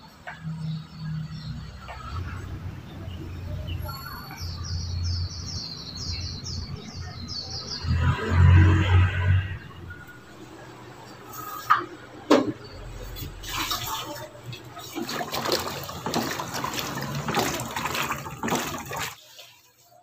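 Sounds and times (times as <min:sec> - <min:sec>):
water sloshing in mop bucket: 0:12.9 - 0:20.0.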